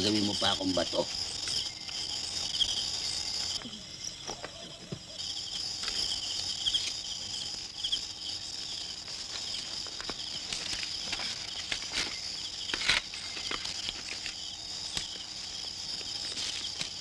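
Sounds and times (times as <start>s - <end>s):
crickets chirping: 0.0s - 17.0s
faint rustles in undergrowth: 8.7s - 17.0s.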